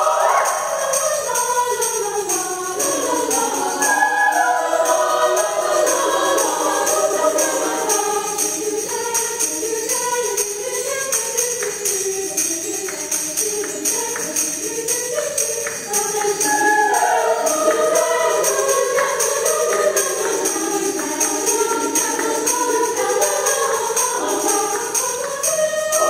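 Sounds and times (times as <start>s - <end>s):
tambourine beat: 0.0s - 26.0s
voices singing: 0.0s - 26.0s.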